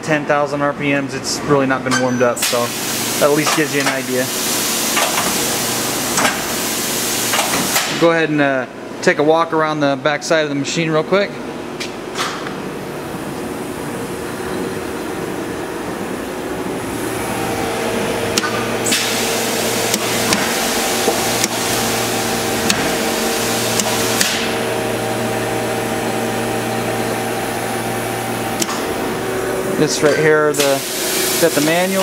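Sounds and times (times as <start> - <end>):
machine hum with whining tones: 0.0 - 32.0
loud hiss: 18.8 - 24.5, 30.5 - 32.0.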